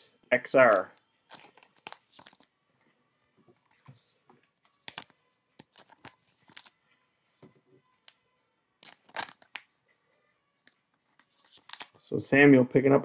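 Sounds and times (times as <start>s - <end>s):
cards sliding into plastic sleeves: 0.6s - 2.5s, 3.8s - 6.7s, 8.8s - 9.7s, 11.1s - 12.0s.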